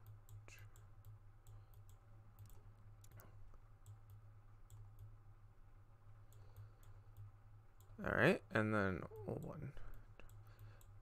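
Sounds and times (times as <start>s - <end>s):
computer mouse clicking: 0.0s - 5.2s, 6.3s - 8.0s, 9.2s - 11.0s
steady low hum: 0.0s - 11.0s.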